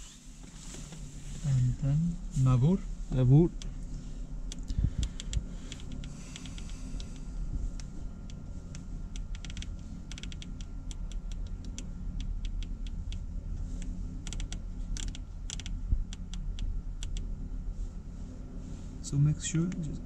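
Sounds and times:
steady low hum: 0:00.0 - 0:20.0
knob detent clicks: 0:04.5 - 0:13.2, 0:14.2 - 0:17.3.

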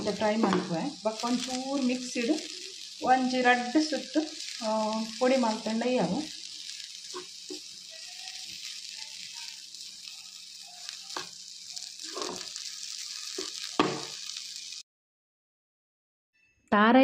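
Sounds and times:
food sizzling in a pan: 0:00.0 - 0:14.8
metal spatula scraping a pan: 0:06.4 - 0:14.4.

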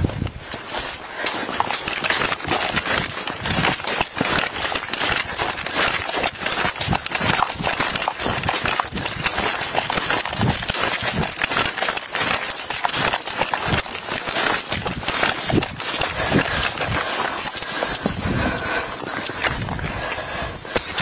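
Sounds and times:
running footsteps in snow: 0:00.0 - 0:21.0.

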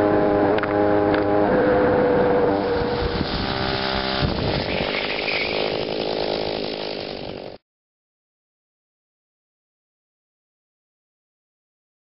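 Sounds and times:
two-stroke engine running: 0:02.2 - 0:07.6.

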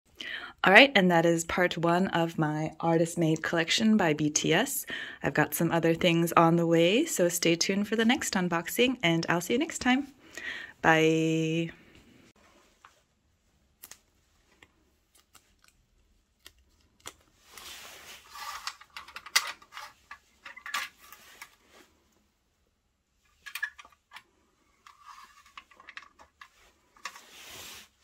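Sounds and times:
plastic bag rustling and crinkling: 0:16.6 - 0:19.0.

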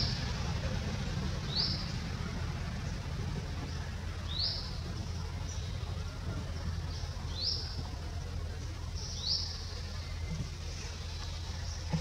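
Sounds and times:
low background rumble: 0:00.0 - 0:12.0
bird chirping: 0:03.6 - 0:06.0.

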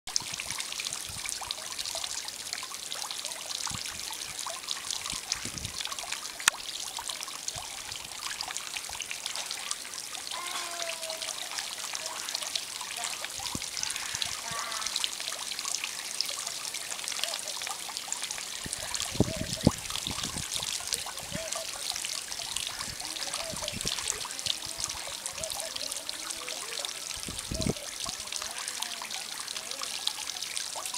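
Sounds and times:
wind gusts buffeting microphone: 0:05.4 - 0:05.8, 0:18.6 - 0:21.4, 0:22.8 - 0:24.2, 0:27.2 - 0:27.8.

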